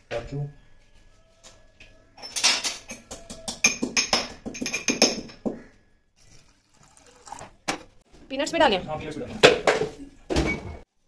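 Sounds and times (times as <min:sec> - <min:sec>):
milk splashing into metal pot: 0:06.2 - 0:07.8.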